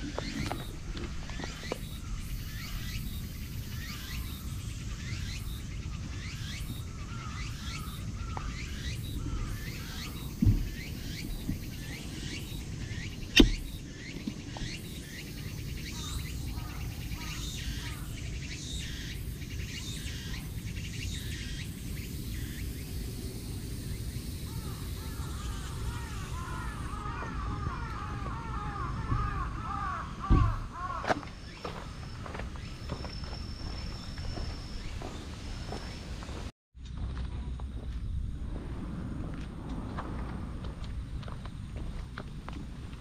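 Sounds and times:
birds chirping: 0:00.0 - 0:36.5
low rumble: 0:36.8 - 0:43.0.

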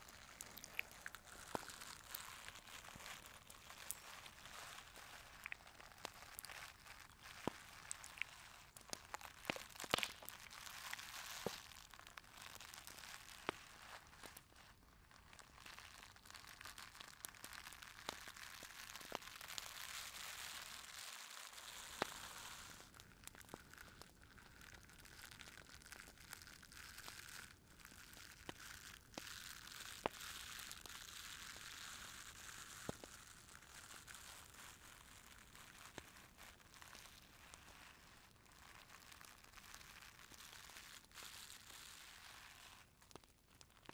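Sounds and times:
soft hiss: 0:00.0 - 0:24.6
faint crackling and crinkling: 0:00.0 - 0:43.9.

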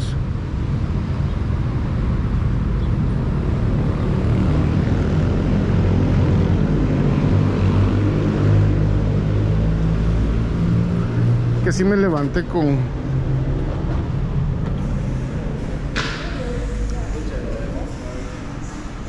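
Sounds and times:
low engine rumble: 0:05.1 - 0:19.0.

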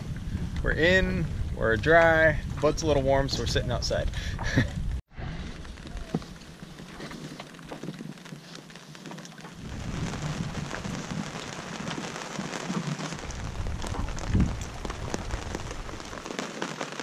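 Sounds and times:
rain pattering on canvas: 0:05.3 - 0:17.0
low rumble: 0:09.6 - 0:16.2.

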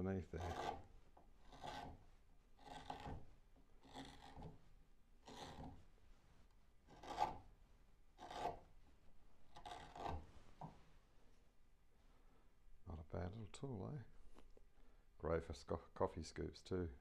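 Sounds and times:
gouge scraping into wood: 0:00.4 - 0:05.9, 0:06.8 - 0:07.6, 0:08.2 - 0:08.7, 0:09.5 - 0:10.8.

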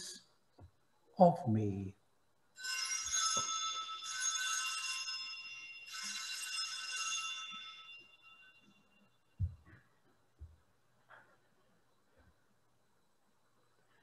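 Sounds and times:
small altar bells jingling: 0:02.6 - 0:09.4.

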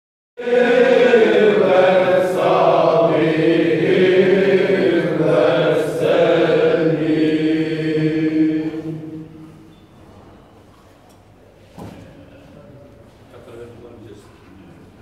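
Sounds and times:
men chanting together: 0:00.4 - 0:09.4.

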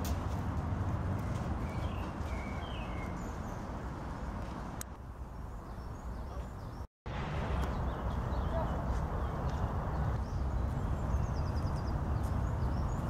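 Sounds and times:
traffic rumble: 0:00.0 - 0:13.0
bird chirps: 0:01.2 - 0:04.0, 0:07.6 - 0:13.0.

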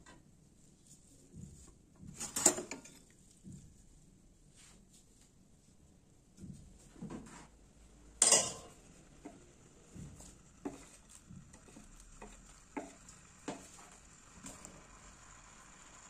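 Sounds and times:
pot clanking: 0:08.2 - 0:09.4, 0:10.0 - 0:14.7.

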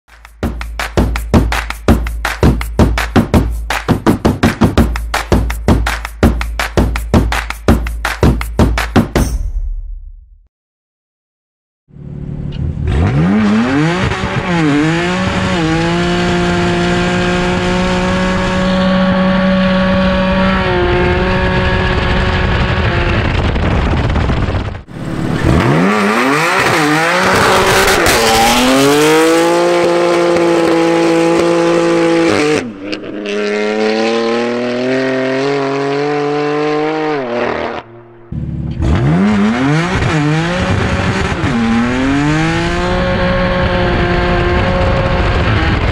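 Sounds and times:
car engine revving hard: 0:12.0 - 0:24.1, 0:24.9 - 0:45.9.

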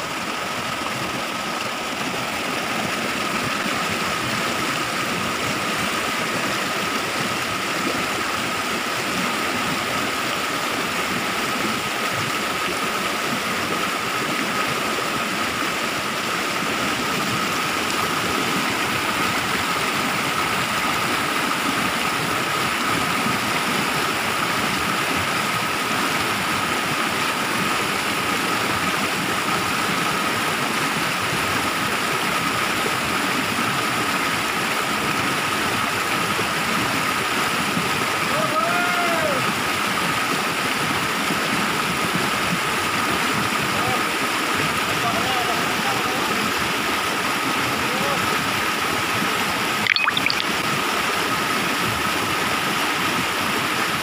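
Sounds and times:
stream water rushing over rocks: 0:00.0 - 0:54.0
thin high tone: 0:49.9 - 0:50.6.

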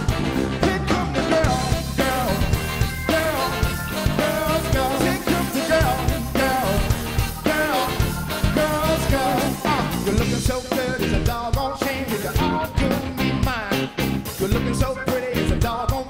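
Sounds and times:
saxophone horn section: 0:00.0 - 0:10.2
bass: 0:00.0 - 0:16.0
drums: 0:00.0 - 0:16.0
electric guitar: 0:00.0 - 0:16.0
man singing: 0:00.0 - 0:16.0.

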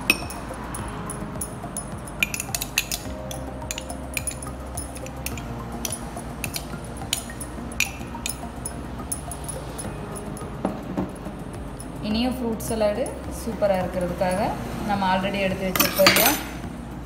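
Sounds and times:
metal spoon clinking on glass: 0:00.0 - 0:10.5, 0:15.7 - 0:16.6.

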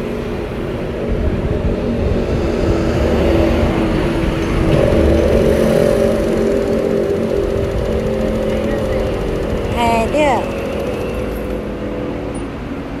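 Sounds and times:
motor engine running: 0:04.6 - 0:11.8.

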